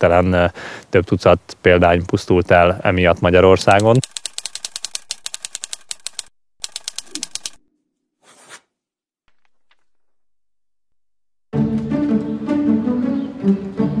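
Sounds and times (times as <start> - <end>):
faint clicks: 3.7 - 7.6
typewriter keys clacking: 3.7 - 7.6.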